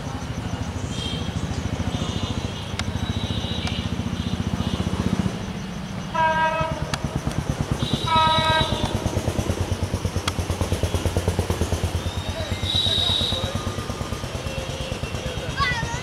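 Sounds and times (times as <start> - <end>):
diesel engine idling: 0.0 - 16.0
locomotive air horn blasts: 6.1 - 6.9, 7.8 - 9.0.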